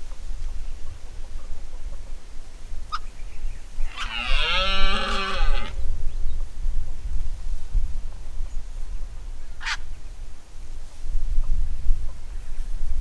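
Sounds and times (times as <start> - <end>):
deer stag roaring: 3.9 - 5.8.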